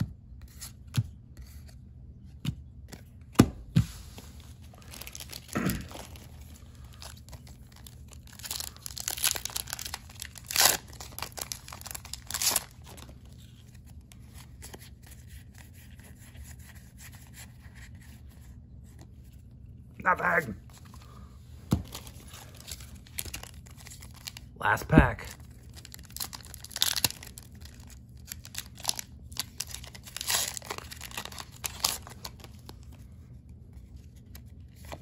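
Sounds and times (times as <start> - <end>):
foil wrapper tearing and crinkling: 4.8 - 13.1, 21.9 - 24.5, 25.3 - 32.8.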